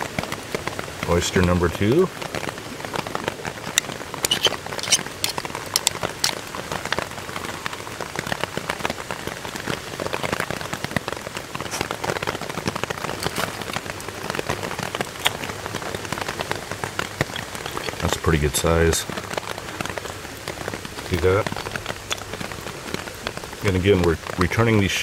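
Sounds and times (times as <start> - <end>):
rain pattering on a tarp: 0.0 - 25.0
knife prying oyster shell: 3.6 - 6.4, 17.2 - 18.2.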